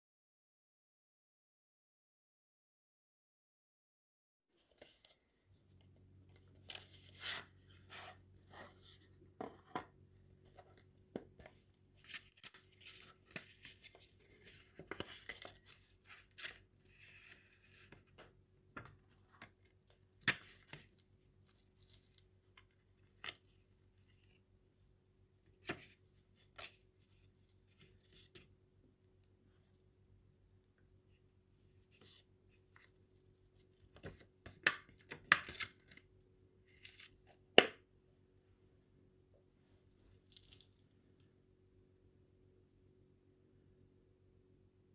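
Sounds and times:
rustling paper packaging: 10.4 - 18.2.

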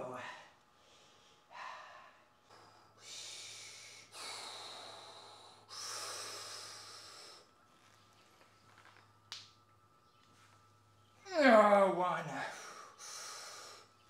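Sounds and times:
man breathing hard: 0.1 - 7.6, 12.3 - 14.0.

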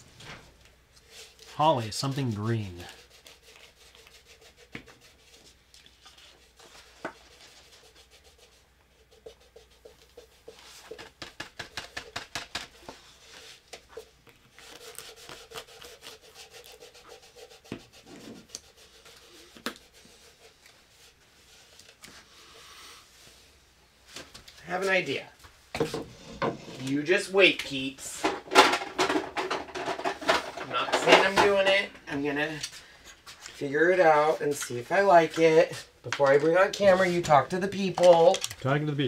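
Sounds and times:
rubbing strokes on craft piece: 1.0 - 23.6.

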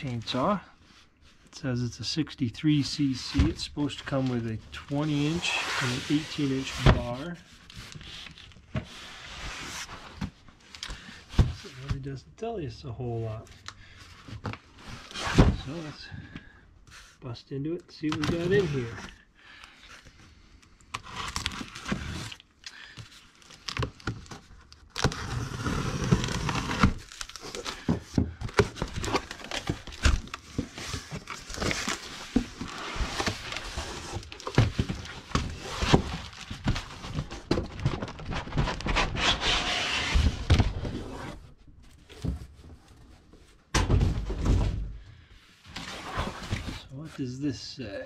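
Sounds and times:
cardboard rustling and crinkling: 2.8 - 12.1, 18.0 - 19.2, 21.0 - 47.3.

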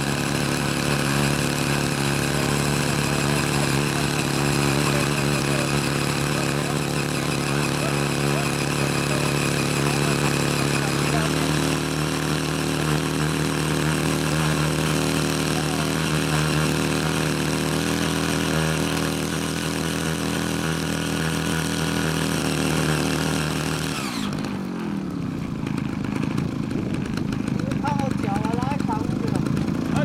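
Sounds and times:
small tiller engine running: 0.0 - 30.0.

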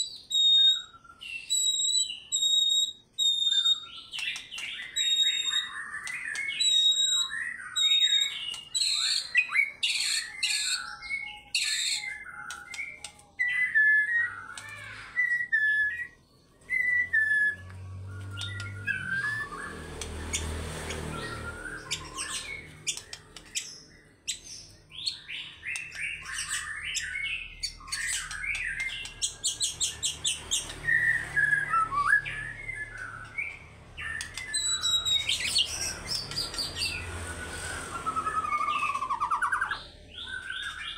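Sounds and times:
bird singing whistled song: 0.0 - 40.9.

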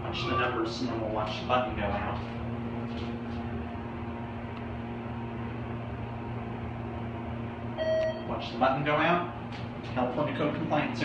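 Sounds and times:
elevator cab hum: 0.0 - 11.0
faint held tone: 7.8 - 8.4.

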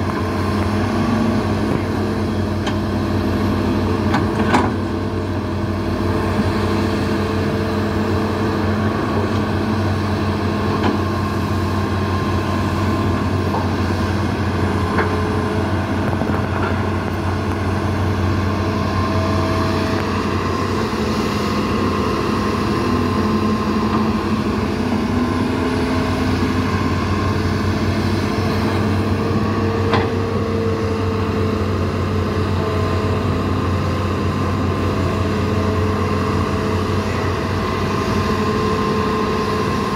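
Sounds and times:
excavator diesel engines running: 0.0 - 39.9.

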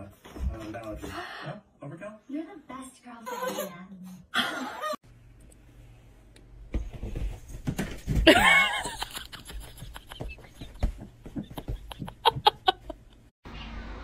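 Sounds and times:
thumps and taps: 9.5 - 12.8.

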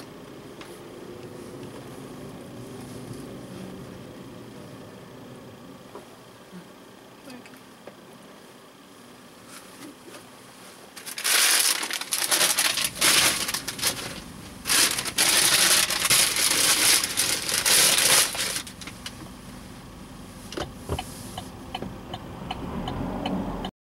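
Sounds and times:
crinkling and rustling: 9.5 - 19.2
turn-signal indicator ticking: 21.4 - 23.4.

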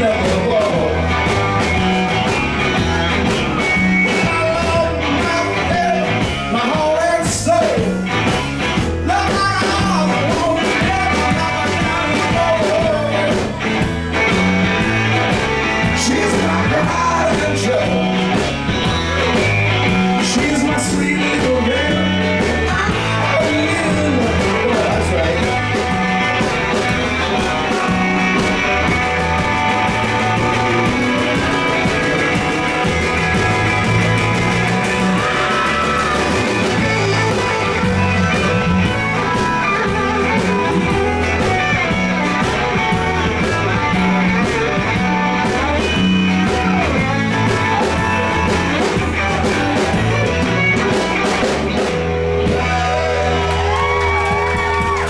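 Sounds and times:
blues-rock band playing: 0.0 - 55.0
person singing: 4.0 - 8.0, 9.0 - 13.6, 15.8 - 26.5, 27.2 - 51.2.

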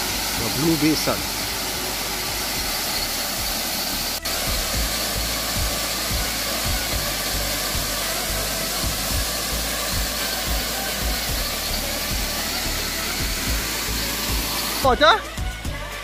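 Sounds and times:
low rumbling: 0.0 - 16.0
waterfall pouring into pool: 0.0 - 16.0.

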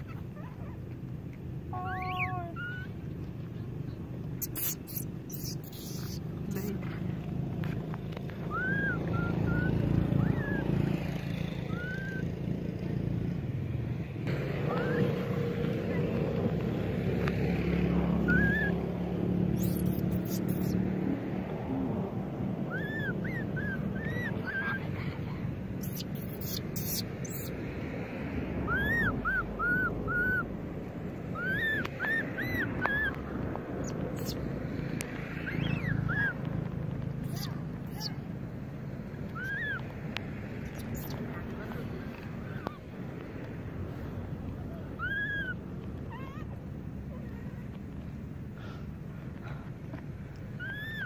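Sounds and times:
baby monkey crying: 1.7 - 3.0, 4.4 - 6.8, 8.5 - 10.8, 11.6 - 12.3, 14.6 - 16.2, 18.2 - 18.9, 19.5 - 20.8, 22.6 - 25.1, 25.8 - 27.6, 28.7 - 30.5, 31.3 - 33.2, 33.8 - 34.4, 35.4 - 36.4, 37.2 - 38.2, 39.3 - 39.9, 40.6 - 41.2, 44.9 - 46.6, 50.6 - 51.0
high arched chirping calls: 1.7 - 3.0, 4.3 - 6.8, 8.4 - 12.4, 14.6 - 16.3, 18.1 - 21.0, 22.6 - 24.9, 25.7 - 27.7, 28.6 - 30.5, 31.3 - 34.5, 35.3 - 36.4, 37.2 - 38.3, 39.3 - 41.4, 45.0 - 45.6, 50.6 - 51.0.

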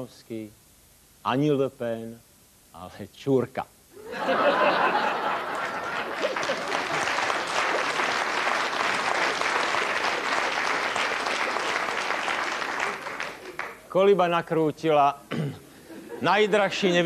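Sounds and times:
audience laughter: 4.0 - 8.0
audience applauding: 4.8 - 13.9.

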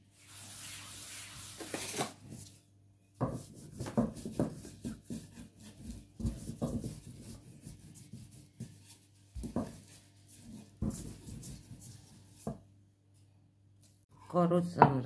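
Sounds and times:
rolling pin rolling dough: 3.1 - 12.8
dull knocks of rolling pin: 3.2 - 7.1.

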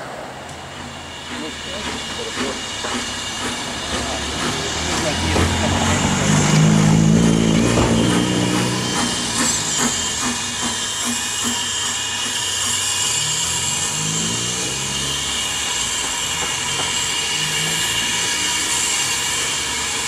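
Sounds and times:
steam hissing: 0.0 - 20.0
low drone: 3.6 - 10.8.

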